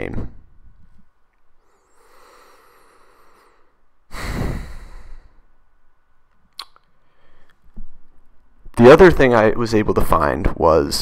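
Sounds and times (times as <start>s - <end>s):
breath intake: 1.6s - 5.4s.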